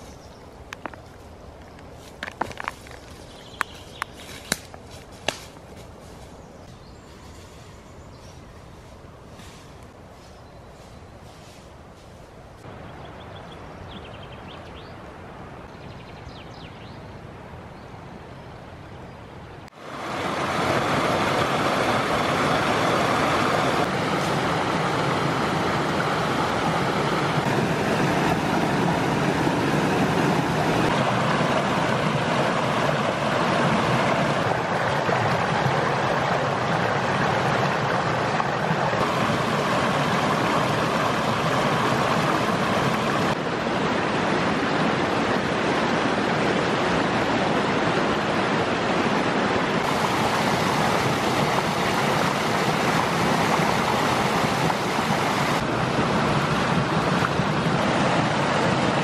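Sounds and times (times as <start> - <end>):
stream rushing over rocks: 19.7 - 59.0.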